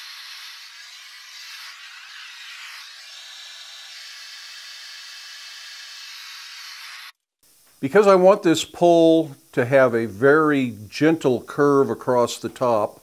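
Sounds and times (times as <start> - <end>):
gas burner hissing: 0.0 - 7.2.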